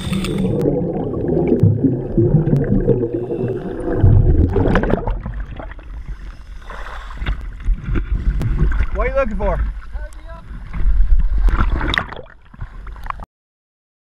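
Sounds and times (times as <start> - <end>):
underwater bubbles gurgling: 0.0 - 13.2.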